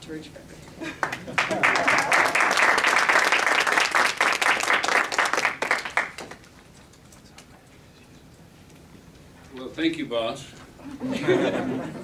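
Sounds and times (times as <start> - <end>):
audience applauding: 1.0 - 6.6.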